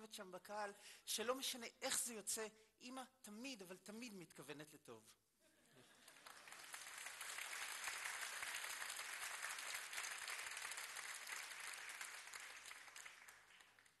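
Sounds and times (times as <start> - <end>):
audience applauding: 6.0 - 14.0.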